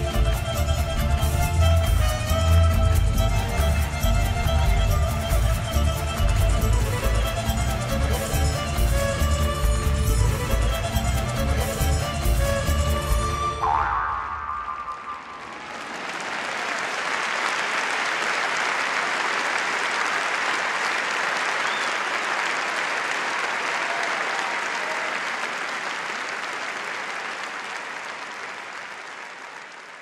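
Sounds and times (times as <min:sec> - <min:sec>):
audience applauding: 0:13.6 - 0:30.0.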